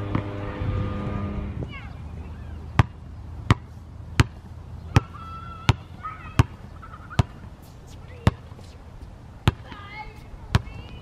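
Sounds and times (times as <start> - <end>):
basketball bouncing on concrete: 0.1 - 0.3, 2.7 - 8.5, 9.4 - 11.0.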